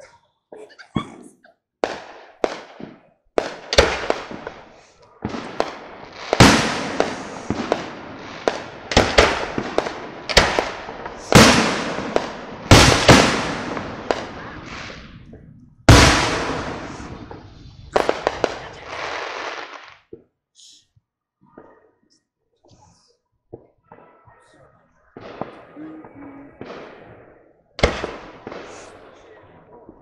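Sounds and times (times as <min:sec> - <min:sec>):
fireworks booming with echo: 0:01.0 - 0:20.2, 0:23.5 - 0:30.0.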